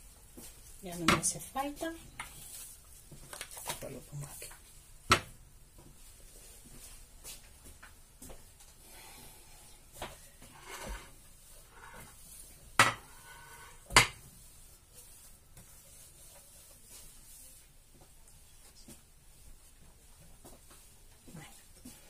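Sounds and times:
sponge wiping counter: 0.4 - 4.6, 10.2 - 20.9.

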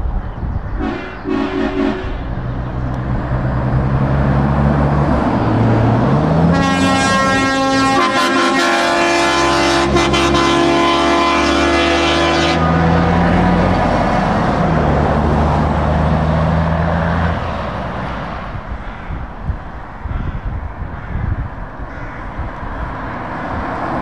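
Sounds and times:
diesel trucks driving past: 0.0 - 24.0
truck air horn: 0.8 - 2.4, 6.5 - 13.2.

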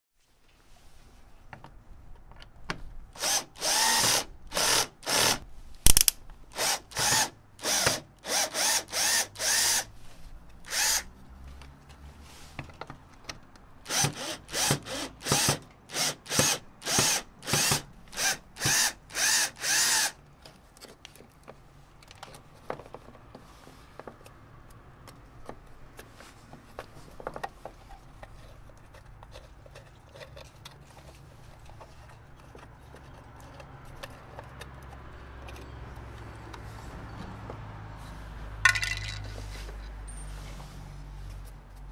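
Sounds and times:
cordless drill bursts: 3.2 - 9.9, 10.7 - 11.1, 13.9 - 20.2
faint clicks and handling noise: 11.3 - 13.8, 20.2 - 40.6.

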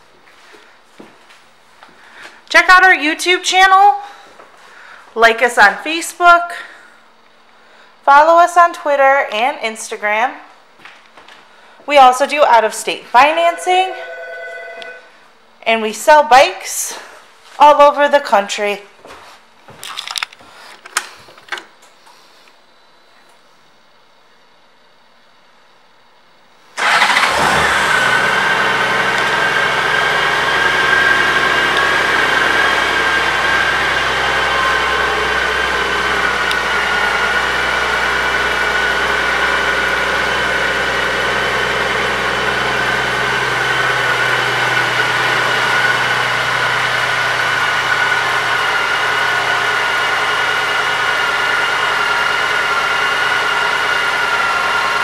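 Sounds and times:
high whine: 13.1 - 15.2, 27.9 - 55.0.

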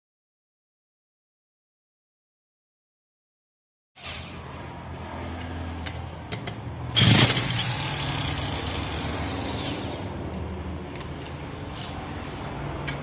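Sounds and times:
electric drill spinning starter: 6.9 - 10.0.

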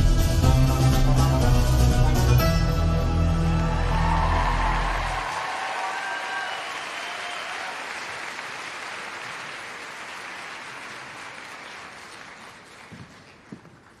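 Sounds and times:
audience applauding: 3.4 - 14.0.

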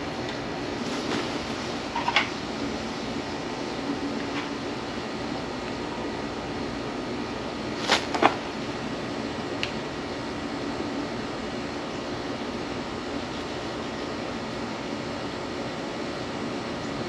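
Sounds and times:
background hum and hiss: 0.0 - 17.0.

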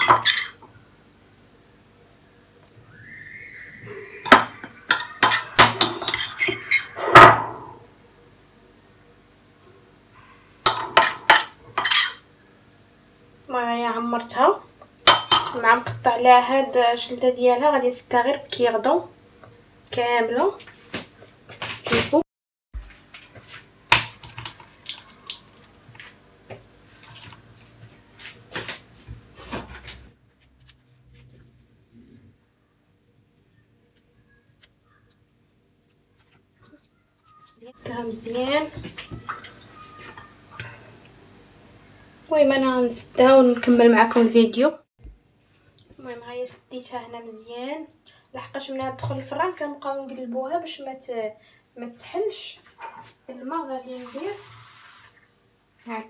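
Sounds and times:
metal spoon clinking against dishes: 4.3 - 7.4, 10.7 - 12.2, 15.1 - 15.6.

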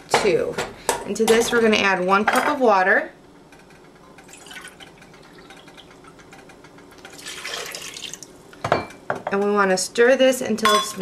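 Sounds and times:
water pouring into a pot: 4.2 - 5.9, 7.0 - 8.3.

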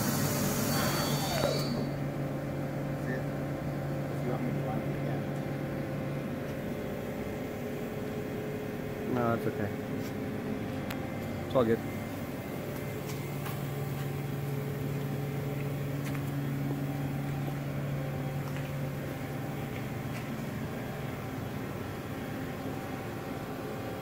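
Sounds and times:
fans hissing: 0.0 - 24.0
machine low hum: 0.0 - 24.0.

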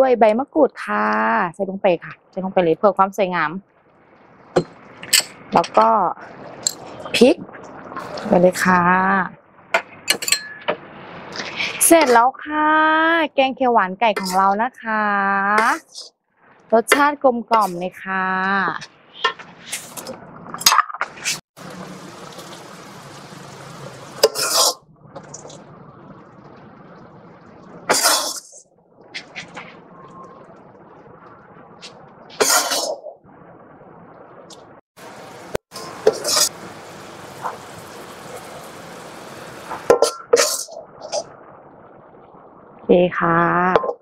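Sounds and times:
metal ladle scraping a pot: 24.2 - 24.8, 32.4 - 33.0, 36.0 - 36.5
metal ladle scraping in wok: 35.8 - 36.6.

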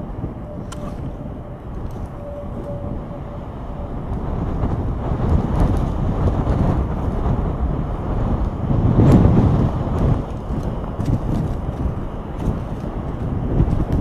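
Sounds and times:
tornado rumbling roar: 0.0 - 14.0.

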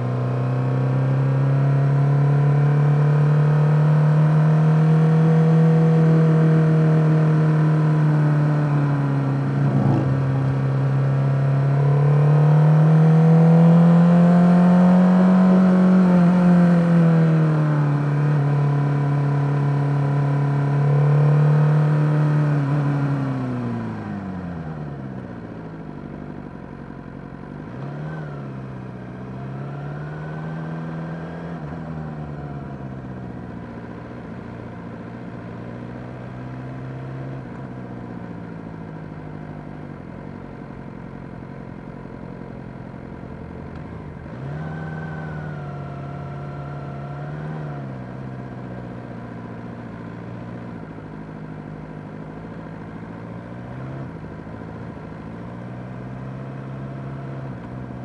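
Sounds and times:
motorcycle engine drone: 3.9 - 27.4, 37.4 - 58.0.

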